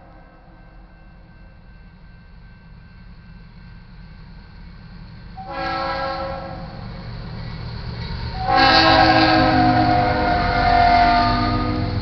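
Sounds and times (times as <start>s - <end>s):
train rumbling: 0.0s - 12.0s
locomotive air horn: 5.4s - 6.8s, 8.4s - 12.0s.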